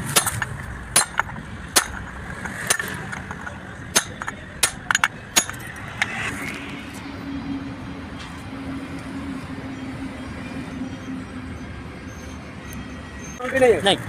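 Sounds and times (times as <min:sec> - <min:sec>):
hammer striking steel: 0:00.0 - 0:06.8.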